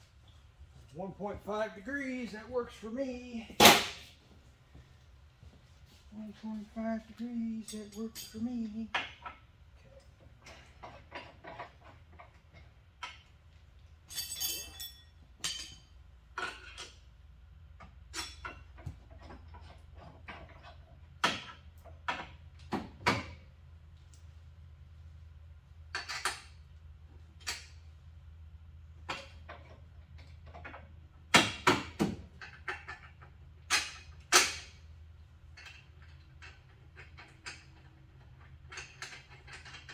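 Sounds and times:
steady low hum: 0:00.0 - 0:10.7
hand tools clinking on metal: 0:07.0 - 0:09.4, 0:14.0 - 0:17.0.

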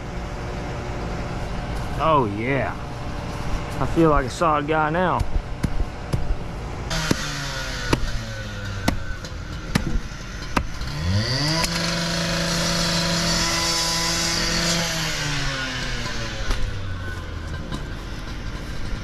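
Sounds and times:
engine revving: 0:01.9 - 0:19.0
machete knocking into sod: 0:09.7 - 0:10.8.

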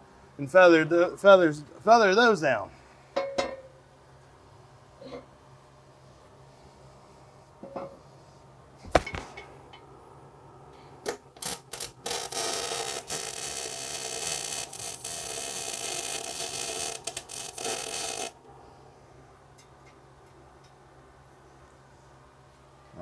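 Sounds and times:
grinder grinding steel: 0:11.8 - 0:18.4.

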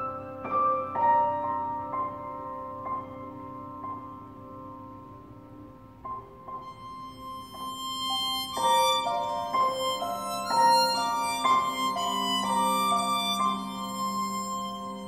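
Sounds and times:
piano notes: 0:00.0 - 0:15.0
hurdy-gurdy melody: 0:06.6 - 0:15.0.

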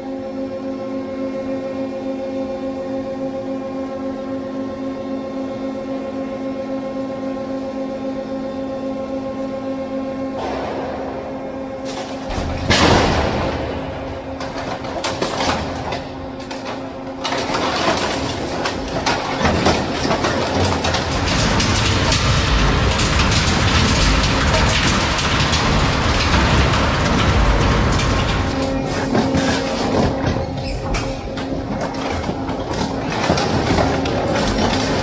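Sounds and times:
loud metal crash: 0:10.4 - 0:35.0
shredder crunching metal: 0:10.4 - 0:35.0.

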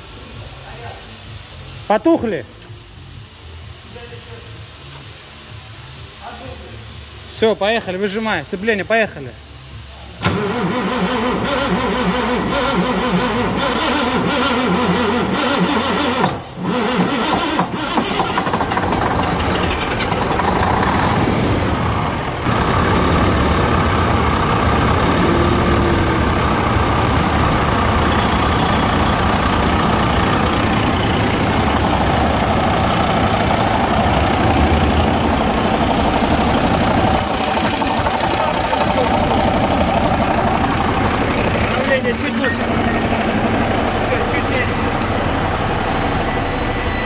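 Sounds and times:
diesel engine cranking and running: 0:10.1 - 0:47.0.

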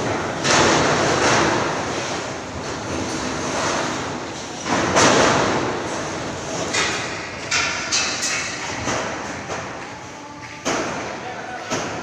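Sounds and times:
thuds on metal roof sheeting: 0:00.0 - 0:02.9, 0:04.6 - 0:06.0.

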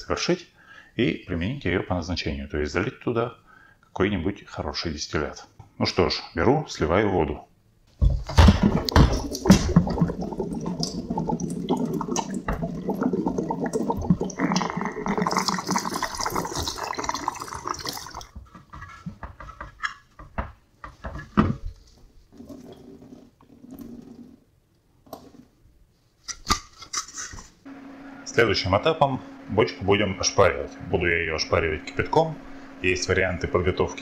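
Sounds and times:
water splashing into steel sink: 0:08.3 - 0:18.3.

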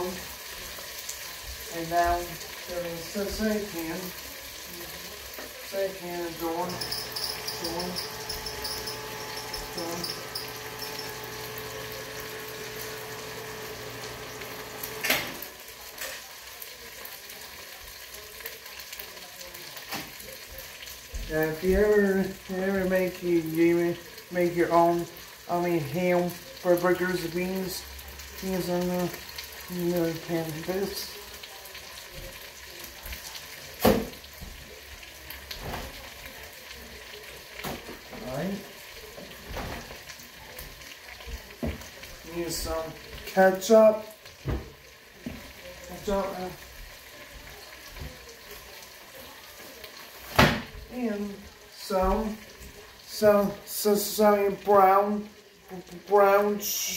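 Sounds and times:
food sizzling in a pot: 0:00.0 - 0:56.9.

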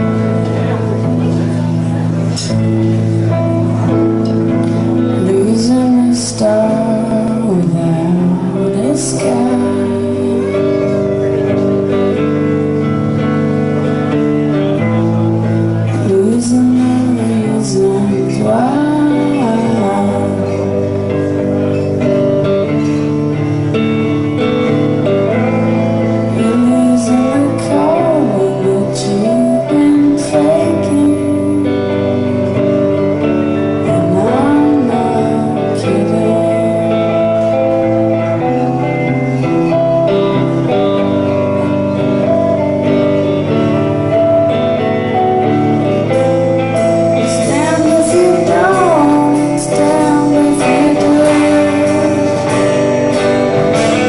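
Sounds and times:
electric guitar chords: 0:00.0 - 0:54.0
woman singing: 0:05.0 - 0:11.1, 0:15.9 - 0:20.8, 0:26.3 - 0:32.3, 0:33.8 - 0:37.6, 0:47.0 - 0:54.0.

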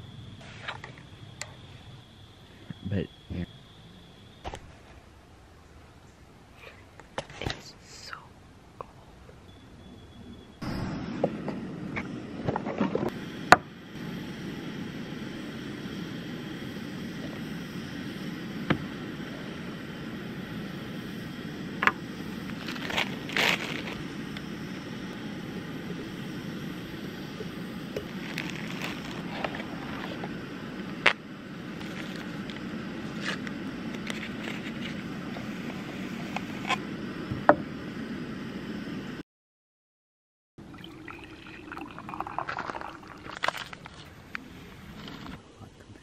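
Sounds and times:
steady low rush: 0:10.6 - 0:12.5, 0:13.1 - 0:39.2.

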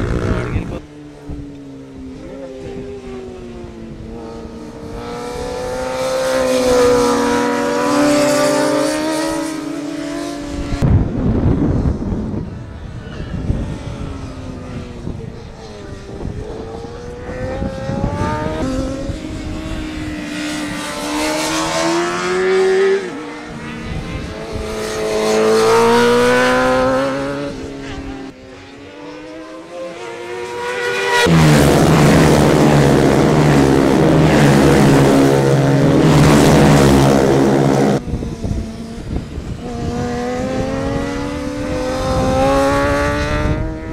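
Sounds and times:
motorcycle engine revving hard: 0:29.2 - 0:43.9.

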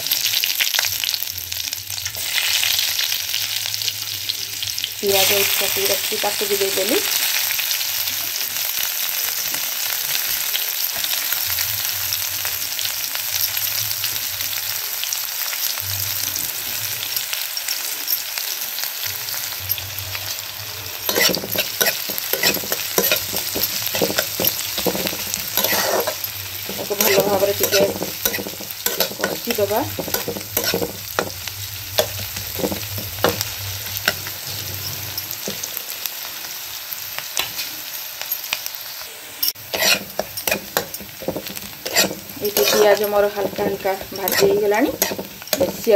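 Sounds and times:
onions sizzling in hot oil: 0:00.0 - 0:45.9
spatula scraping and knocking pan: 0:21.0 - 0:35.7, 0:39.6 - 0:45.9.

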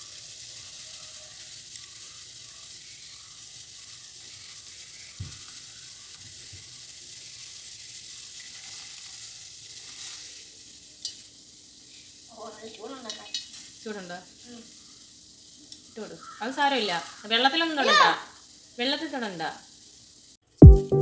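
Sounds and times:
water boiling in a pot: 0:00.0 - 0:20.5
soft low thumps: 0:20.6 - 0:21.0.

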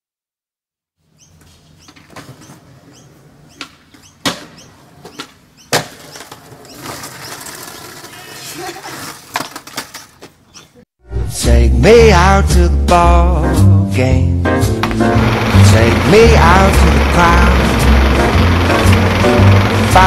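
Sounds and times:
skateboard clacking on concrete steps: 0:03.6 - 0:10.4
skateboard wheels rolling: 0:03.6 - 0:10.5, 0:14.8 - 0:20.0.

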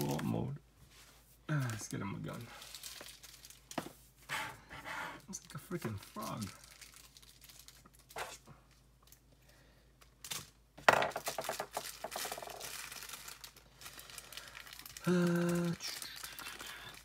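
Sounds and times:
plastic packaging crinkling: 0:01.5 - 0:03.8, 0:05.4 - 0:09.3, 0:11.2 - 0:17.0.

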